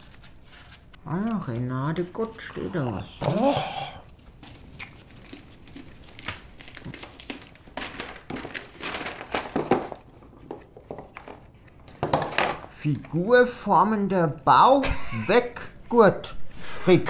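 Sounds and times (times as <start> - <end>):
wrapping paper crinkling: 0.0 - 3.2, 4.2 - 10.4.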